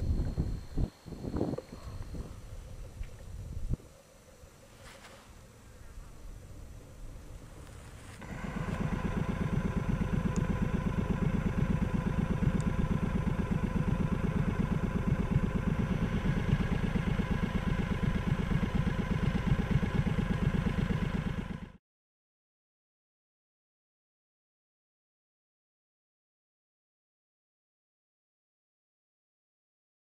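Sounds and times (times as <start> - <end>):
engine running steadily: 0.0 - 21.8.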